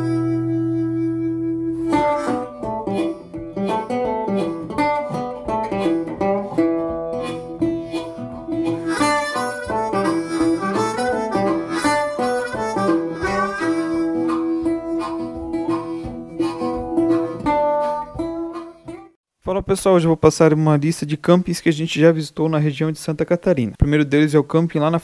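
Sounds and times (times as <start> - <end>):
harmonica melody: 0.0 - 19.2
plucked strings: 0.0 - 19.2.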